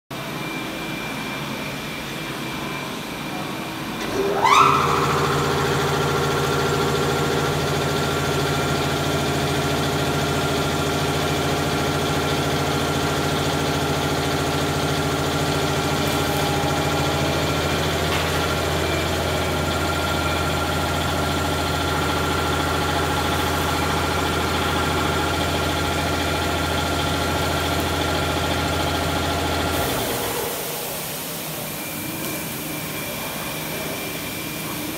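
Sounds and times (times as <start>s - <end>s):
knife grinder motor whining: 4.0s - 11.8s.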